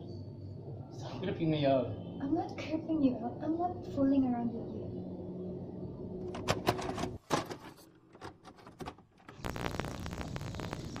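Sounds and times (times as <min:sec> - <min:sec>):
low hum: 0:00.0 - 0:06.6
crackling glitch clicks: 0:09.4 - 0:11.0
tape hiss: 0:09.4 - 0:11.0.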